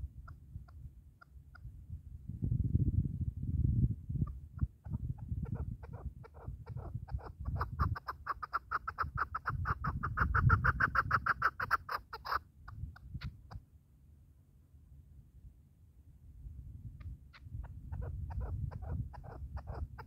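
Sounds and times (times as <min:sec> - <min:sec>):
partridge clucking call: 0:05.4 - 0:12.4.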